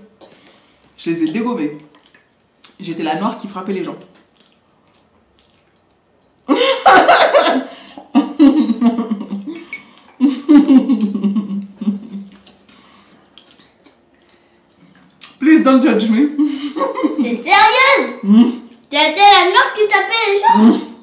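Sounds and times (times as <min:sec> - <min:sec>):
woman laughing loudly: 0:06.5 - 0:09.5.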